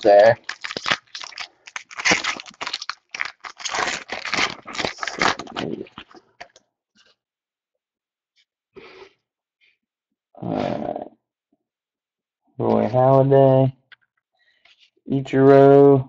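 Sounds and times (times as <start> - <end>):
plastic wrapper tearing and crinkling: 0.0 - 6.6.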